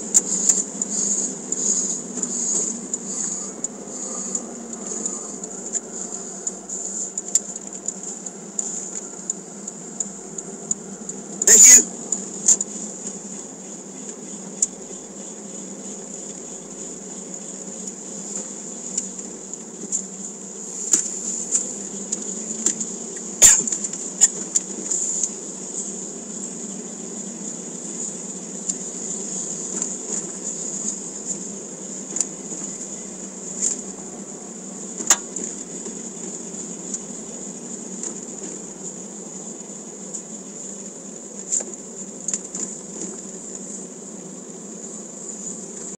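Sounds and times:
high-pitched buzz: 0.0s - 13.4s
car engine and tyres drone: 0.2s - 12.7s.

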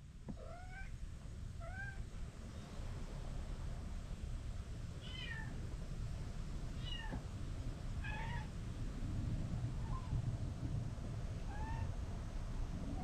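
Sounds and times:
cat meowing: 0.4s - 0.9s, 5.0s - 5.5s, 6.8s - 7.2s, 8.0s - 8.5s.

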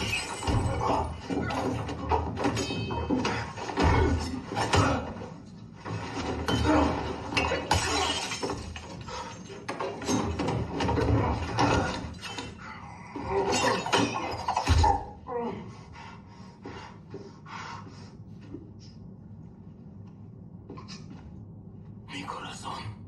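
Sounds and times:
fight blows and scuffling: 0.0s - 12.6s.

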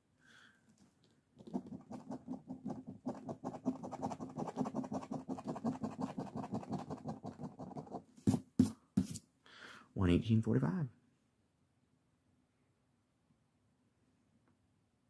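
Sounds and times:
coin scratching lottery ticket: 1.4s - 8.0s.

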